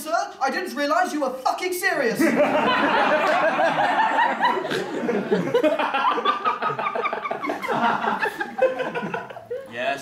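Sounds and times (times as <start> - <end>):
audience laughing: 2.2 - 9.7.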